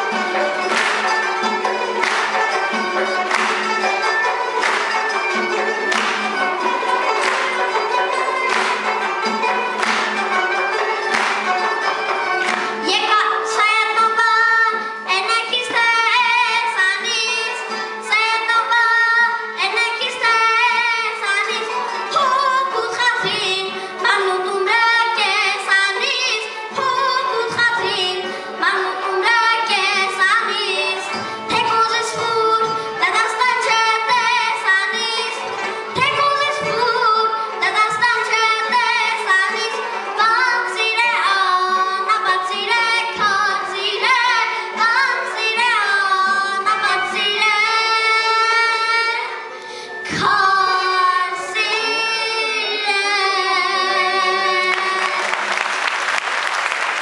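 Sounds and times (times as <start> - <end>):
plucked strings and frame drum: 0.0 - 19.0, 19.6 - 48.4, 50.0 - 51.0
child singing folk melody: 12.8 - 55.2.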